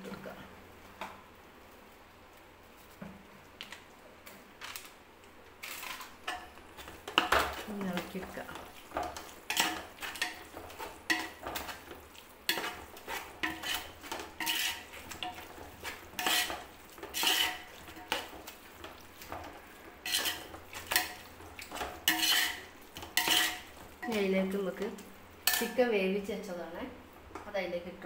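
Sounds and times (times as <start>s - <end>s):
metal ladle scraping a pot: 8.9s - 24.2s.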